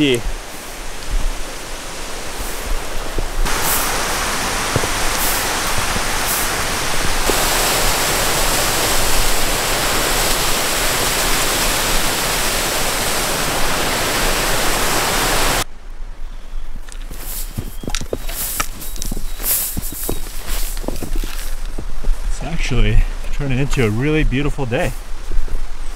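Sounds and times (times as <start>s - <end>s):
waterfall rushing: 0.0s - 15.6s.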